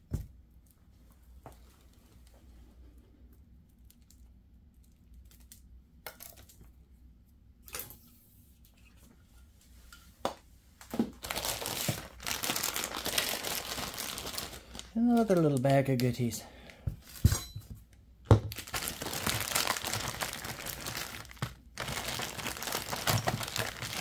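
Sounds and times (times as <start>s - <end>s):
plastic bag crinkling: 10.9s - 16.4s, 18.4s - 24.0s.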